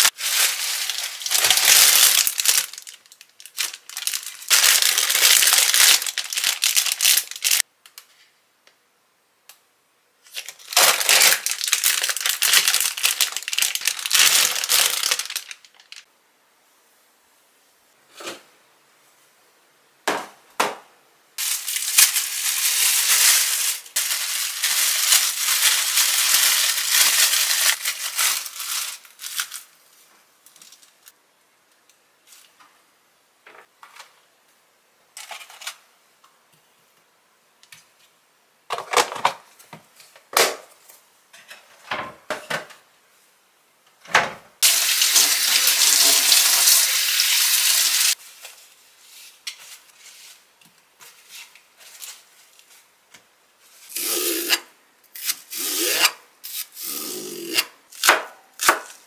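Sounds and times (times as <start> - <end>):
rustling: 0.0 - 8.2, 48.1 - 53.9
kitchen faucet running: 44.6 - 48.2.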